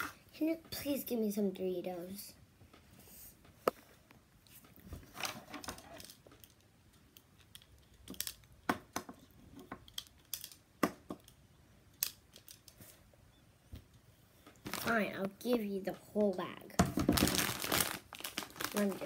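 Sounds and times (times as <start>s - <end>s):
handling clicks and rustles: 3.4s - 13.1s.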